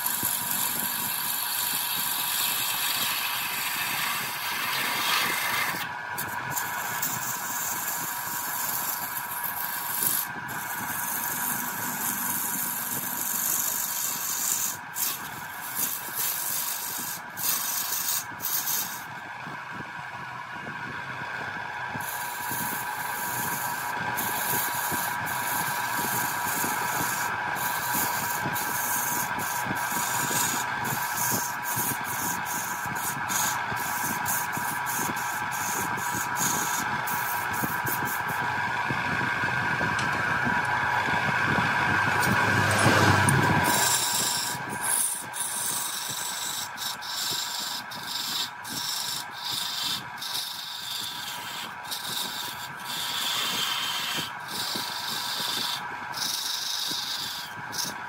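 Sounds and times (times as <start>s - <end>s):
turning tool scraping wood: 0.0s - 19.2s, 22.0s - 58.0s
wood lathe whine: 0.0s - 58.0s.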